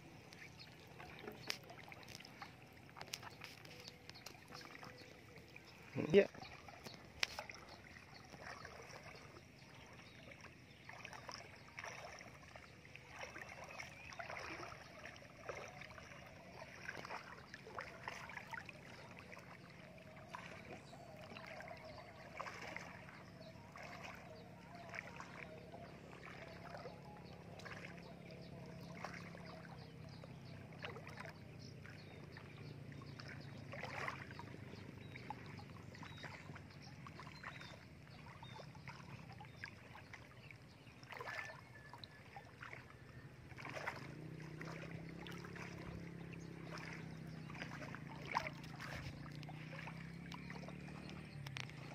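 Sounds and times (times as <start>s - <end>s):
wading through shallow water: 0.0s - 51.9s.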